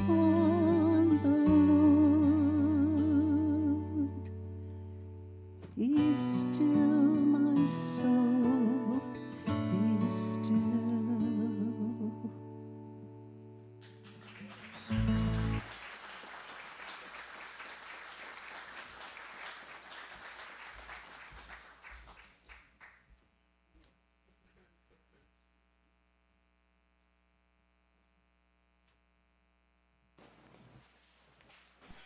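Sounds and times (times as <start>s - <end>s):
organ accompaniment: 13.8s - 15.7s
congregation applauding: 13.8s - 23.1s.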